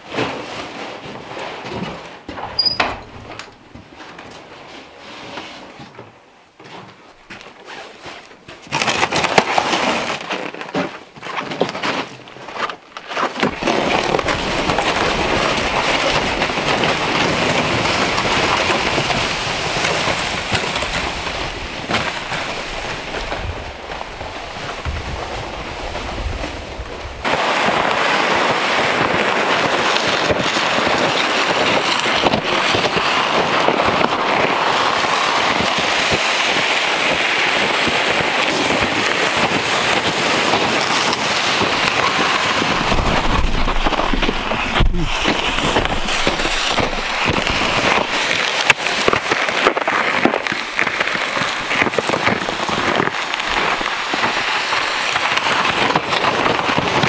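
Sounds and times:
sleds scraping over snow: 0:00.0 - 0:57.0
boots crunching on snow: 0:40.4 - 0:55.1.

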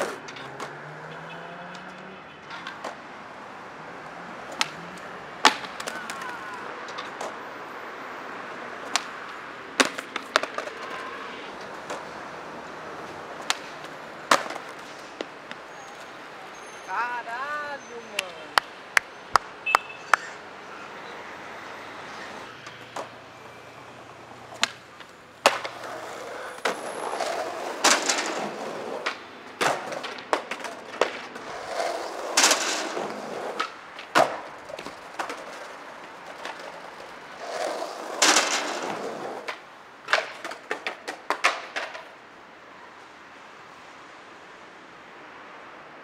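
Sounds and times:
skateboard clacking: 0:00.0 - 0:00.8, 0:01.7 - 0:03.2, 0:04.2 - 0:07.5, 0:08.5 - 0:16.2, 0:17.1 - 0:20.4, 0:22.1 - 0:23.3, 0:24.0 - 0:42.4
skateboard wheels rolling on concrete: 0:00.0 - 0:46.0.

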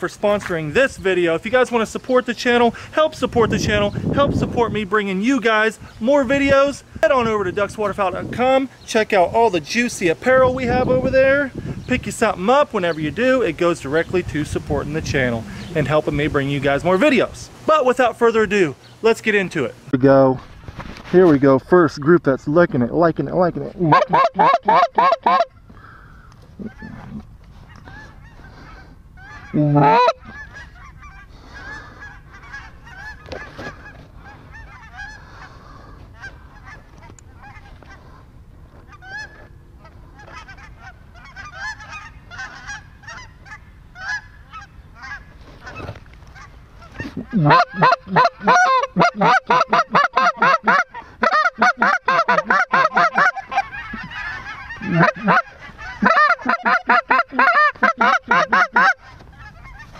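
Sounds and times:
geese calling overhead: 0:00.0 - 0:19.9, 0:23.6 - 0:59.9
goose calls clucking and honking: 0:23.7 - 0:59.9.

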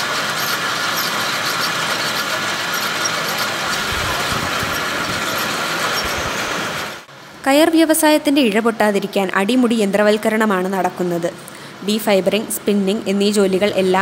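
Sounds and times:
spinning machine whirring: 0:00.0 - 0:07.1.

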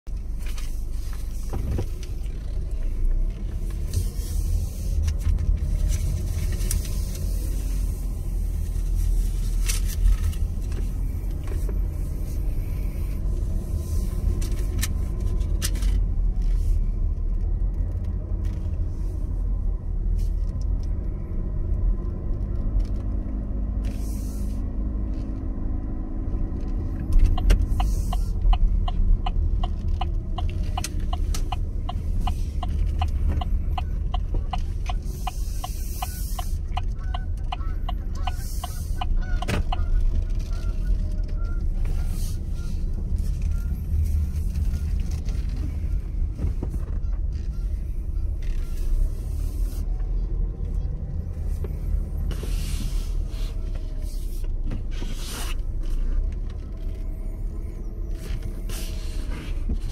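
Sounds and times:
car engine from inside cabin: 0:00.0 - 0:59.9
road rumble: 0:00.0 - 0:59.9
turn signal ticking: 0:24.6 - 0:52.5
scattered clicks: 0:26.7 - 0:41.5.

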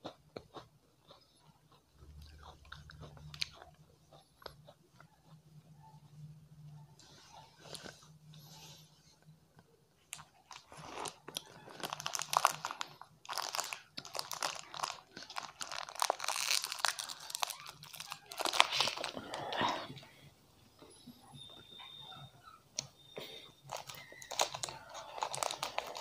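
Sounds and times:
plastic wrapper crinkling: 0:10.1 - 0:19.5, 0:23.7 - 0:26.0.

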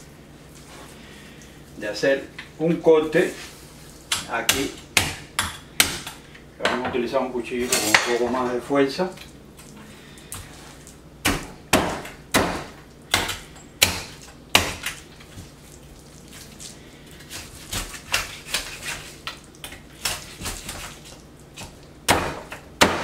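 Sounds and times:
knife chopping on wooden board: 0:04.1 - 0:06.2, 0:11.2 - 0:15.0, 0:21.6 - 0:23.0.

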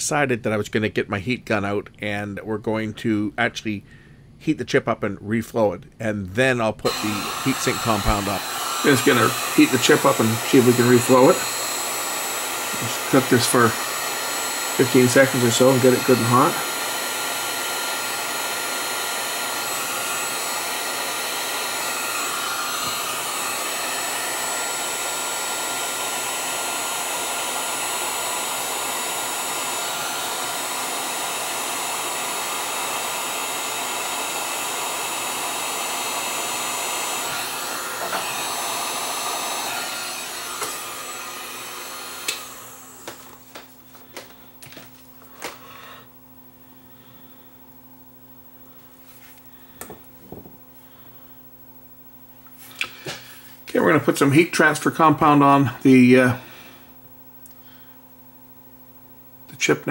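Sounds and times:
heat gun blowing air: 0:06.8 - 0:46.1.

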